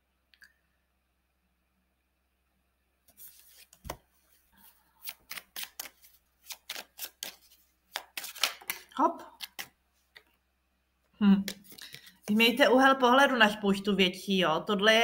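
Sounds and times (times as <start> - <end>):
cards being shuffled: 3.1 - 10.2, 11.4 - 12.4.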